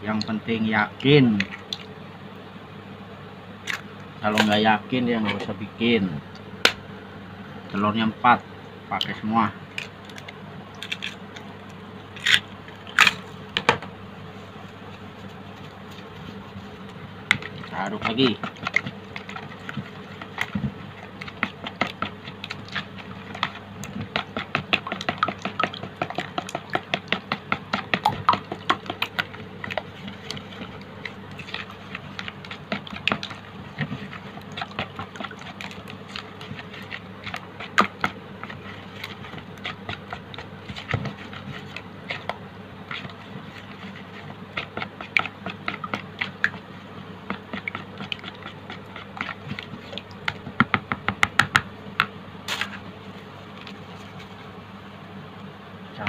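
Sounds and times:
wet squelches: 0:15.2 - 0:46.7
spatula scraping plastic bowl: 0:15.2 - 0:50.7.

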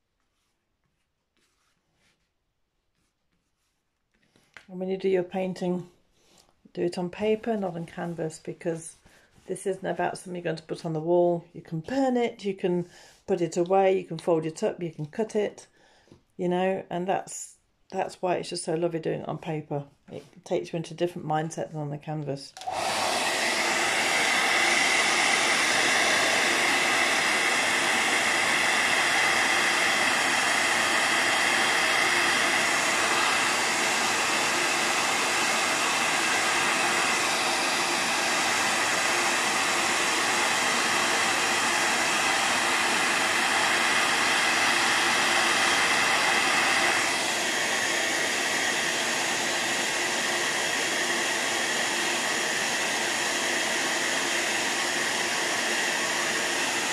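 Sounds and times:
hair dryer blowing: 0:22.5 - 0:56.9.

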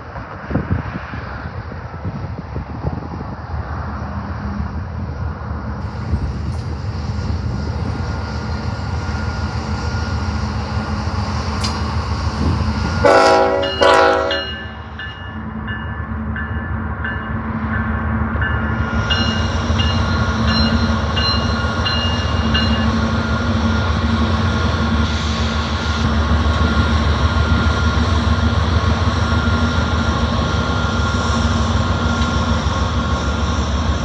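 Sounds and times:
diesel locomotive engine rumble: 0:00.0 - 0:34.0
locomotive horn blasts: 0:12.9 - 0:14.8.

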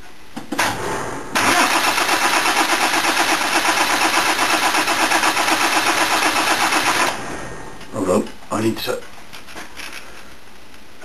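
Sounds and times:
starter motor cranking diesel engine: 0:01.4 - 0:07.2.

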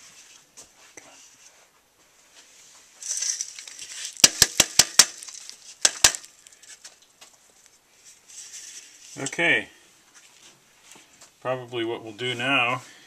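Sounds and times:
compost rustling on metal mesh: 0:02.5 - 0:09.4.

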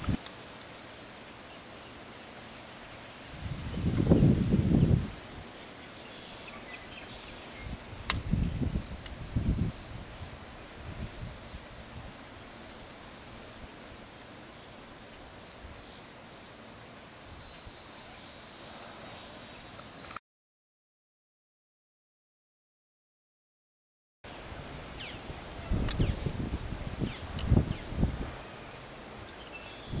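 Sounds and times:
high-pitched insect trill: 0:00.0 - 0:20.2, 0:24.3 - 0:30.0
wind buffeting microphone: 0:03.3 - 0:05.3, 0:07.6 - 0:12.2, 0:25.3 - 0:28.4.

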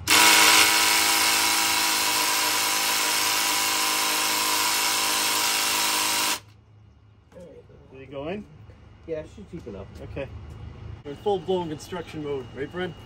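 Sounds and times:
drill motor whine: 0:00.0 - 0:06.5.

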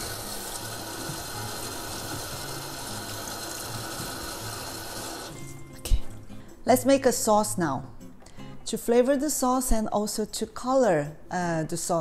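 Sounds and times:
tap water splashing into sink: 0:00.0 - 0:05.3.

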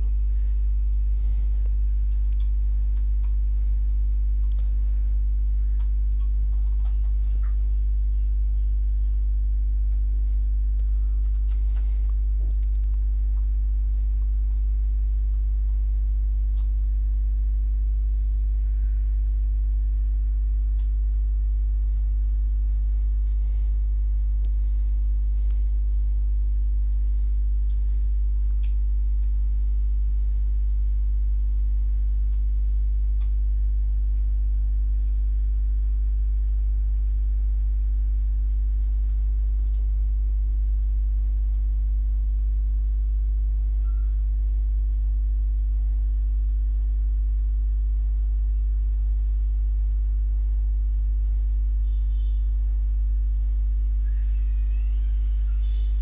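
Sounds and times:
loud steady low hum: 0:00.0 - 0:56.0.

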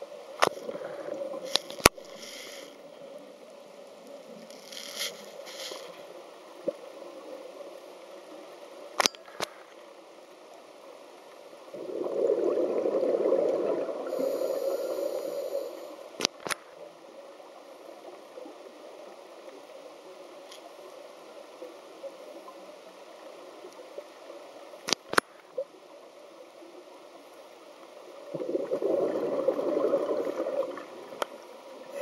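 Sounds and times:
underwater bubbles gurgling: 0:00.0 - 0:02.2, 0:10.5 - 0:24.7, 0:25.3 - 0:32.0.

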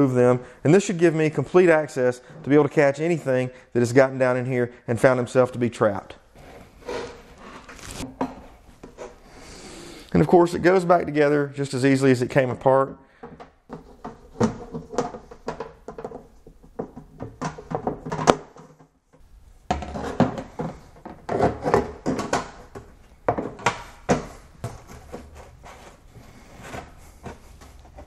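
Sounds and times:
acrylic parts knocking and clacking: 0:13.2 - 0:19.0, 0:19.7 - 0:25.2.

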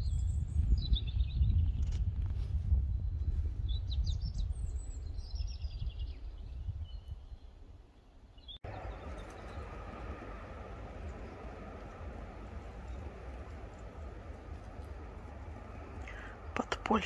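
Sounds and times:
small birds chirping: 0:02.9 - 0:17.0
steady outdoor hiss: 0:07.7 - 0:17.0
low rumble: 0:08.6 - 0:17.0.

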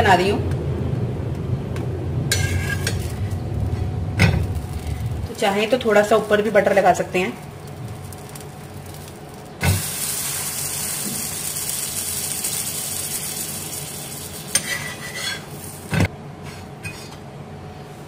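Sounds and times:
spatula scraping and knocking: 0:02.3 - 0:04.5
butter sizzling on hot pan: 0:04.4 - 0:16.0.

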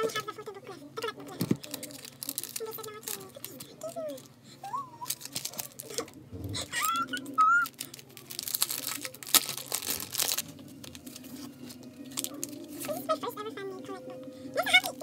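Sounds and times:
packaging crinkling and rustling: 0:01.3 - 0:04.3, 0:05.0 - 0:06.2, 0:06.8 - 0:13.3.

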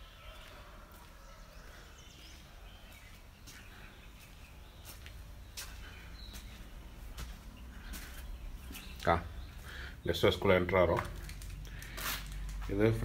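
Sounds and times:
footsteps: 0:00.3 - 0:09.8.

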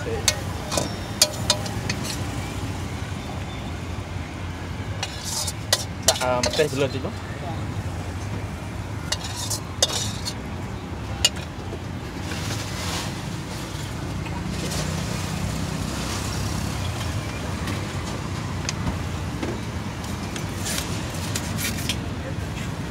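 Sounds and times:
street traffic rumble: 0:00.0 - 0:22.9
spatula clinking on wok: 0:00.2 - 0:02.3, 0:05.0 - 0:06.8, 0:09.1 - 0:10.4.

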